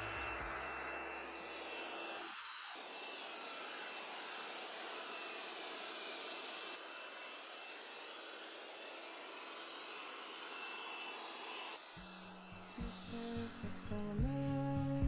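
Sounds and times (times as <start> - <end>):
robot vacuum suction hiss: 0.0 - 6.7, 9.8 - 14.0
faint high whine: 0.0 - 14.8.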